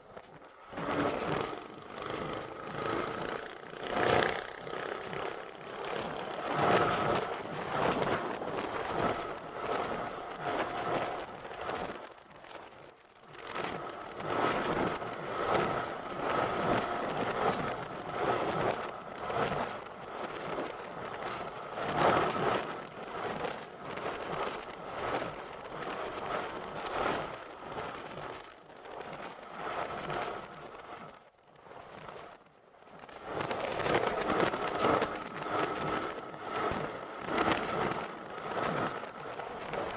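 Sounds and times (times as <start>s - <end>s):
wind buffeting microphone: 0.0s - 32.4s, 33.0s - 39.9s
motorcycle engine running: 0.2s - 11.8s.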